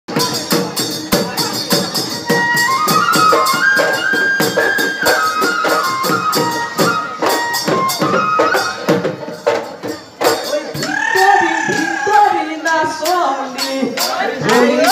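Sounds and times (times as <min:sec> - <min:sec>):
drums beating fast rhythm: 0:00.1 - 0:14.9
wind instrument melody: 0:01.4 - 0:10.0.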